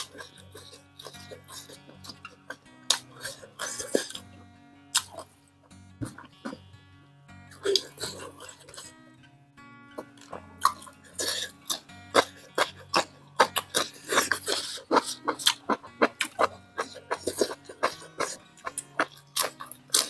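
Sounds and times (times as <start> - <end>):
chewing and mouth smacks: 0.0 - 4.2, 10.0 - 20.0
soft background music: 0.0 - 20.0.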